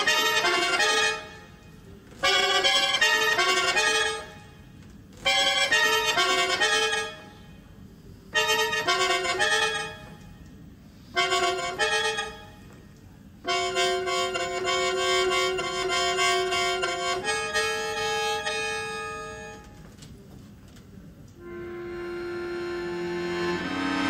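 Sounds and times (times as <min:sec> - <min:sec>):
button accordion playing: 0:00.0 - 0:01.6, 0:02.2 - 0:04.6, 0:05.2 - 0:07.4, 0:08.3 - 0:10.2, 0:11.1 - 0:12.6, 0:13.4 - 0:19.7, 0:21.4 - 0:24.0.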